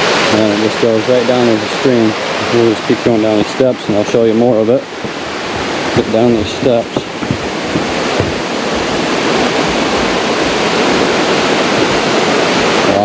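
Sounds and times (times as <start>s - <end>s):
waterfall rushing: 0.0s - 13.0s
footsteps on wooden steps: 3.4s - 10.6s.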